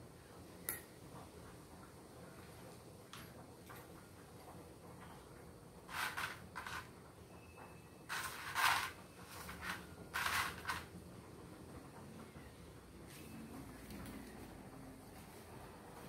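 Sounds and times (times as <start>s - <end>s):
cardboard tube scraping on tiles: 5.9s - 6.9s, 8.1s - 10.9s.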